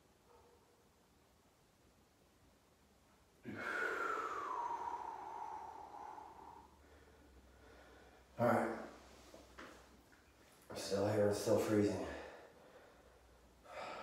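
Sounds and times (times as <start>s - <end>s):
man exhaling forcefully: 3.4s - 8.2s.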